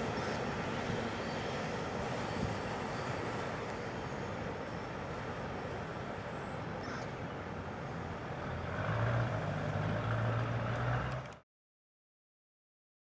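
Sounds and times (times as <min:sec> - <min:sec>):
freight train rumble: 0:00.0 - 0:11.4
vehicle crossing tracks: 0:00.0 - 0:11.4.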